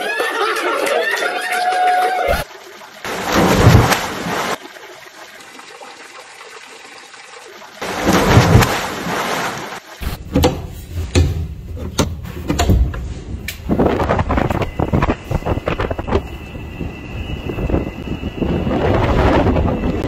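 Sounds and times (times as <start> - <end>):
rush of water: 2.2 - 11.2
person splashing into pool: 2.3 - 4.6, 7.8 - 10.3.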